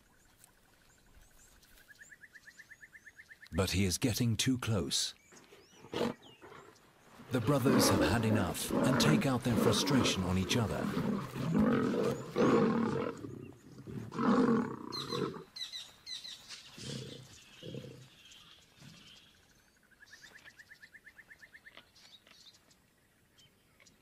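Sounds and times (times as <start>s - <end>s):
lions snarling and roaring: 5.7s - 15.5s, 16.7s - 19.2s.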